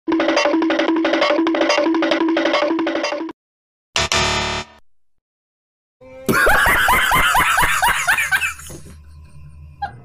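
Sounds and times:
person laughing in squealing bursts: 6.3 - 8.8.

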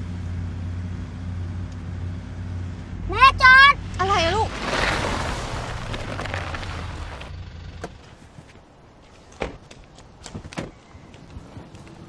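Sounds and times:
car engine and road noise: 0.0 - 12.0.

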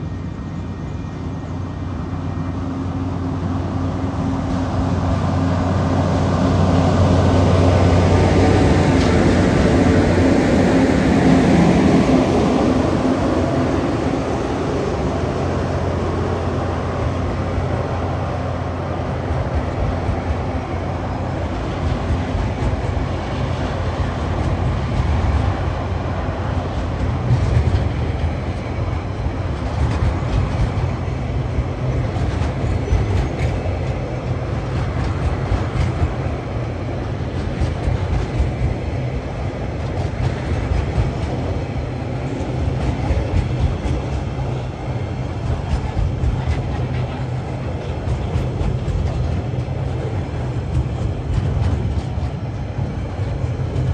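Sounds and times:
freight train rumbling past: 0.0 - 53.9
wheels clicking over rail joints: 26.4 - 53.9.

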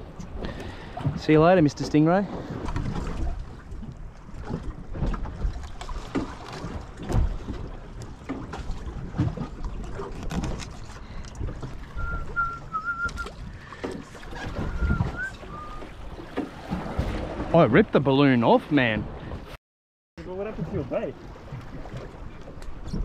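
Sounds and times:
water slapping against boat: 0.0 - 19.6, 20.2 - 23.0
wind buffeting microphone: 8.7 - 17.6
thin wavering whistle: 11.9 - 13.4, 14.4 - 16.0.

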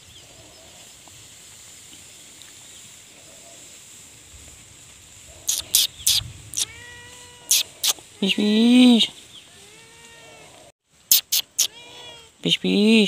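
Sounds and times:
faint rural background: 0.0 - 13.0
person making hissing pish calls: 5.3 - 8.4, 11.1 - 12.3.

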